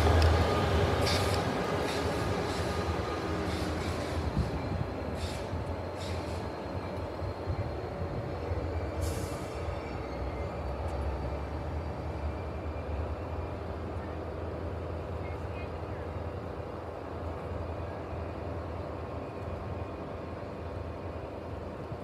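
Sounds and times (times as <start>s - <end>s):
train rumbling: 0.0s - 22.0s
short hiss: 5.2s - 6.4s.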